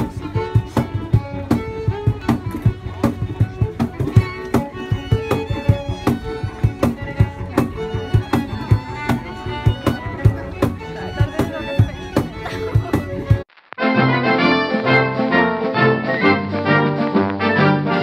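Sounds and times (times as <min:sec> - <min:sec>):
cello: 0:00.0 - 0:13.4
steady percussive beat: 0:00.0 - 0:13.4
violin: 0:00.0 - 0:18.0.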